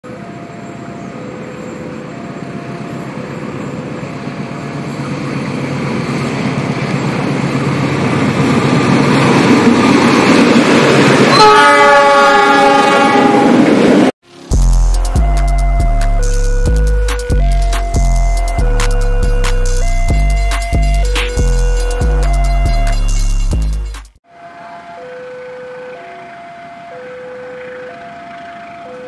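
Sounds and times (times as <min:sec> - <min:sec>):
diesel train engine and wheels: 0:00.0 - 0:29.0
train horn chord: 0:11.3 - 0:13.7, 0:14.3 - 0:17.5, 0:18.2 - 0:20.2, 0:21.0 - 0:23.2.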